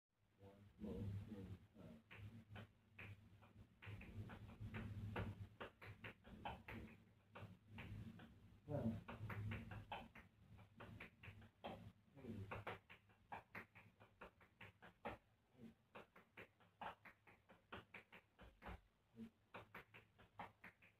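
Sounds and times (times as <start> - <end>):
steady low hum: 0.4 - 12.8.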